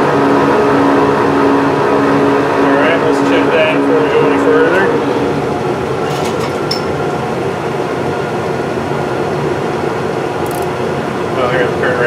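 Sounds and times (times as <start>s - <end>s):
metal lathe humming: 0.0s - 7.6s.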